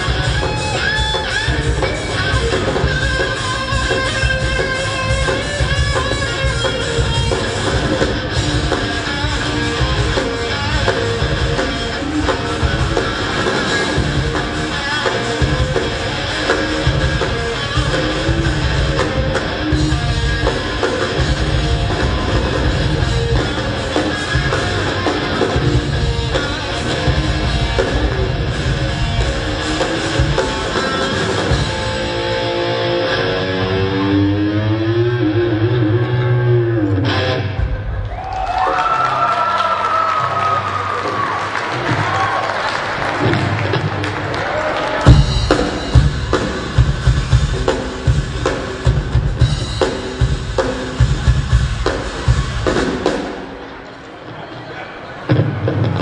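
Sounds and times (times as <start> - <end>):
guitar notes bending in pitch: 0.0 - 38.0
rock band playing loudly: 0.0 - 54.4.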